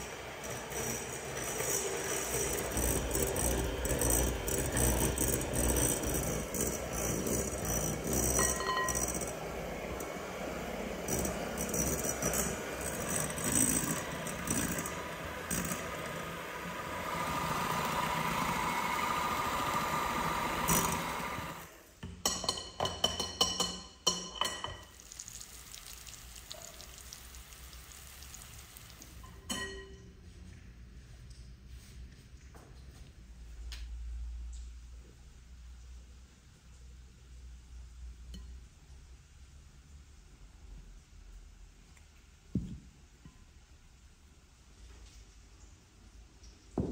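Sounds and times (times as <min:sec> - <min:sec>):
electric hand mixer running: 0:00.0 - 0:21.8
beaters clinking against glass bowl: 0:00.4 - 0:09.4, 0:22.1 - 0:25.0, 0:29.2 - 0:30.1.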